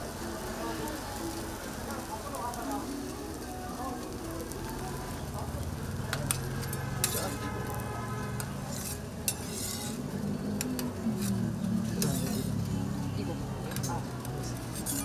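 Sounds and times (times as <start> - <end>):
food sizzling on a griddle: 0.0 - 15.0
metal spatula scraping pan: 6.3 - 12.7, 14.6 - 15.0.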